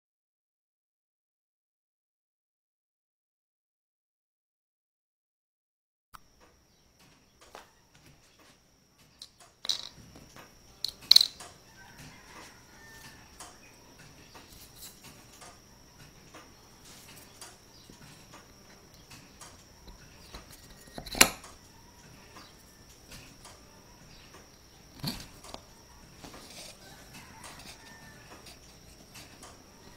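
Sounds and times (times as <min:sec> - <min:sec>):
wooden pieces tapping and clicking: 0:09.2 - 0:11.6.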